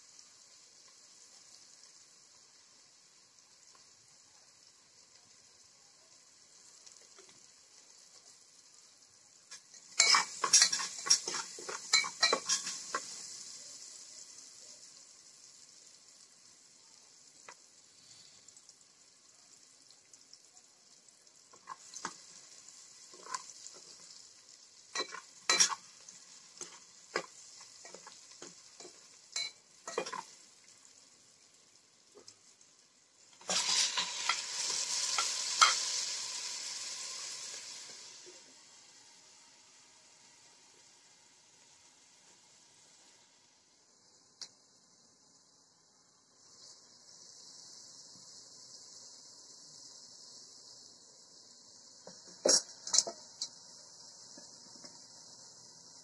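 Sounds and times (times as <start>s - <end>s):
gas burner hiss: 0.0s - 56.0s
metal spoon clinking on pot: 9.5s - 12.8s, 24.9s - 25.8s, 28.8s - 30.3s.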